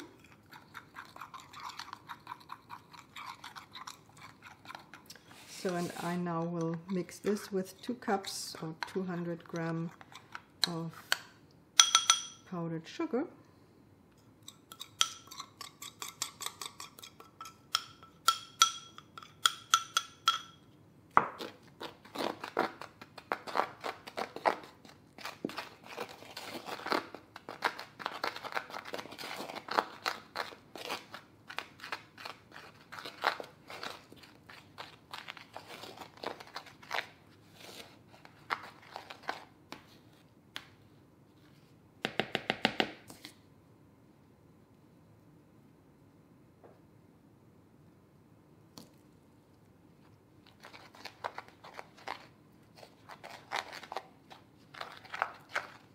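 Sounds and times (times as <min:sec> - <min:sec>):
fork stirring in a bowl: 0:00.0 - 0:12.4, 0:14.3 - 0:20.7, 0:21.4 - 0:39.5, 0:50.4 - 0:55.9
fork clinking against glass: 0:11.8 - 0:12.4, 0:14.5 - 0:20.7.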